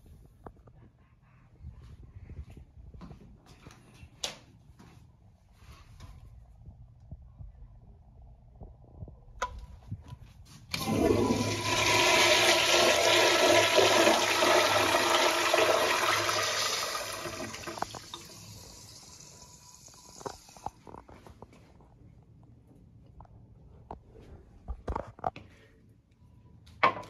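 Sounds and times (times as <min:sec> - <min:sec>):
toilet flushing: 0:10.7 - 0:20.6.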